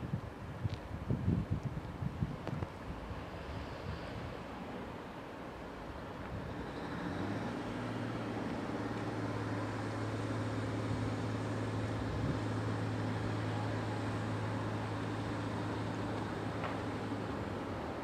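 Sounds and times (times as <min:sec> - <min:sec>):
locomotive humming: 0:05.9 - 0:18.0.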